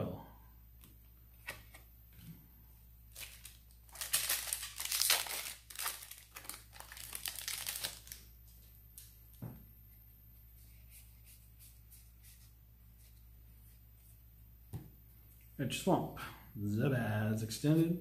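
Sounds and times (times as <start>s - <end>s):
foil wrapper crinkling and tearing: 3.1s - 8.3s.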